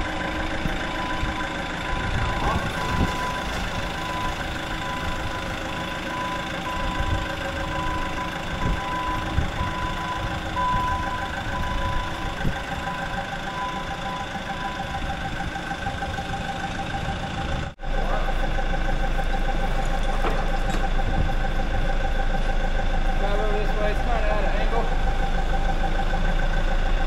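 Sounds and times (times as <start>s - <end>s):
forklift engine running: 0.0s - 27.0s
high-pitched beep: 1.0s - 5.3s.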